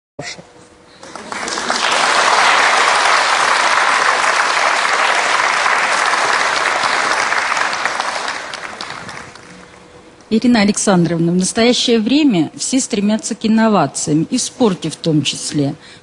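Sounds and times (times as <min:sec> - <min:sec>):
studio audience applauding: 0:01.0 - 0:09.8.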